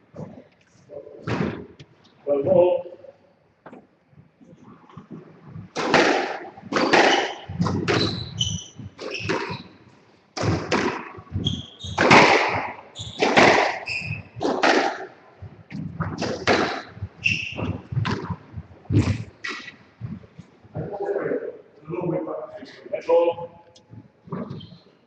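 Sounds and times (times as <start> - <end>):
squash ball cracking off rackets: 5.7 - 9.8, 10.4 - 15.2, 15.8 - 19.8
shoe squeaks on wooden floor: 6.8 - 9.9, 11.2 - 12.2, 12.9 - 14.6, 16.8 - 19.8, 24.3 - 24.9.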